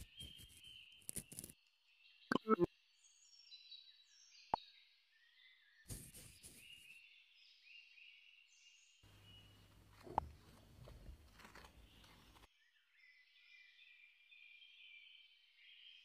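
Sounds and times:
faint bird chirping: 0:00.0 - 0:16.0
brief rustle: 0:09.9 - 0:12.5.

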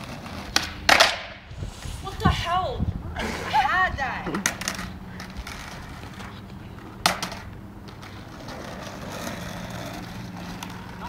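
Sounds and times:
skateboard clack on asphalt: 0:00.0 - 0:01.4, 0:04.3 - 0:11.0
skateboard wheels rolling on asphalt: 0:00.0 - 0:11.0.

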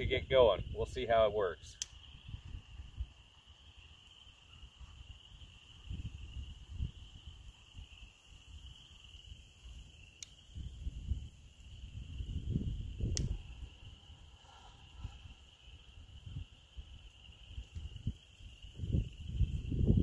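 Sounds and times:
sharp click: 0:01.8 - 0:02.0, 0:10.2 - 0:10.4, 0:13.0 - 0:13.4.

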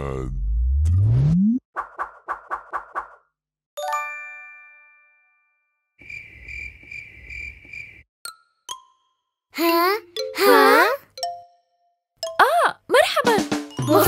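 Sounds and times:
cricket chirping: 0:06.0 - 0:08.0.

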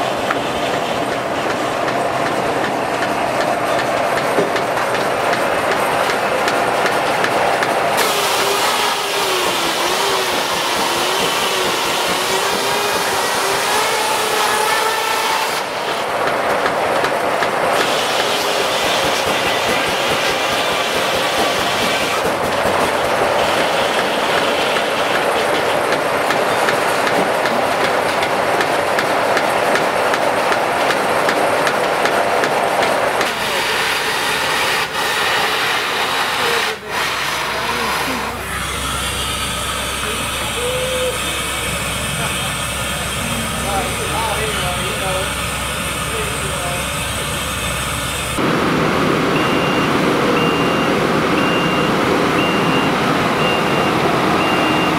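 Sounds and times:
sawmill clatter: 0:00.0 - 0:48.5
circular saw blade whine: 0:33.4 - 0:48.5.

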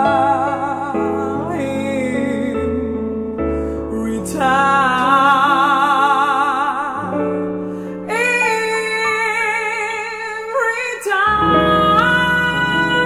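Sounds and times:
woman singing with vibrato: 0:08.1 - 0:13.0.

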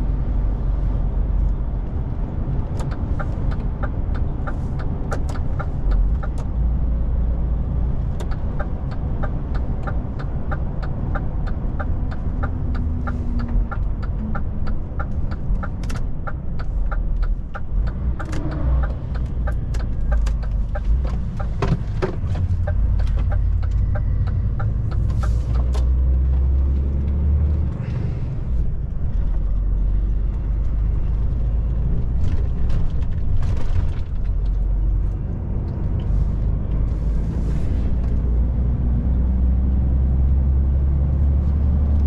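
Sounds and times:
diesel truck engine and road rumble: 0:00.0 - 0:42.0
light regular ticking: 0:08.1 - 0:25.8.

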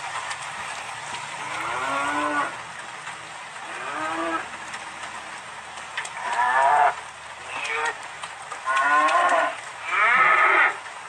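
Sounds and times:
cows mooing: 0:01.4 - 0:02.6, 0:03.6 - 0:04.5, 0:06.2 - 0:08.0, 0:08.6 - 0:10.8.

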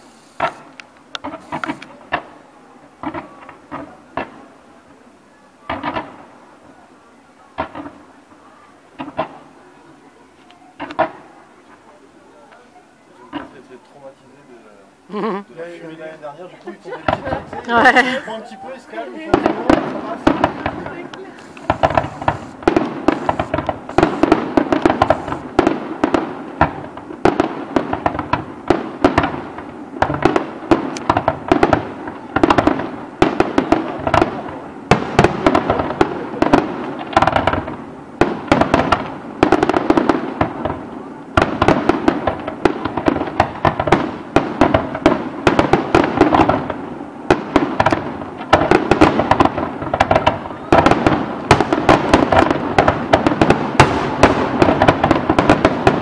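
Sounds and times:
firework bangs: 0:00.0 - 0:14.9, 0:15.6 - 0:56.0
firework crackling: 0:00.0 - 0:56.0.

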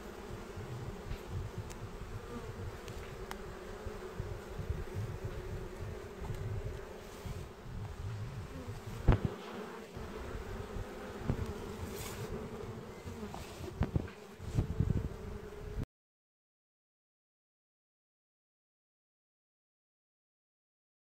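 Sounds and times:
bees humming: 0:00.0 - 0:15.8
low microphone rumble: 0:07.4 - 0:09.2.

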